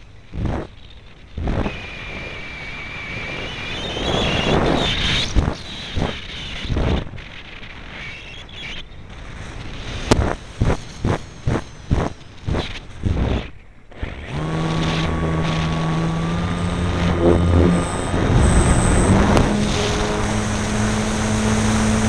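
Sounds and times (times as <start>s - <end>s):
electric motor whine: 10.2s - 22.0s
wind buffeting microphone: 13.9s - 22.0s.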